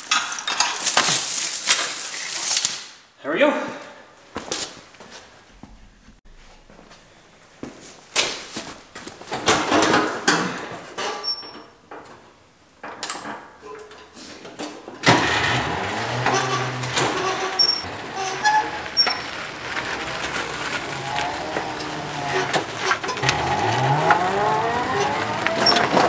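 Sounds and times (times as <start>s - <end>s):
tyres rolling over concrete: 14.9s - 26.0s
knocks and clunks: 15.0s - 26.0s
electric motor humming: 17.9s - 26.0s.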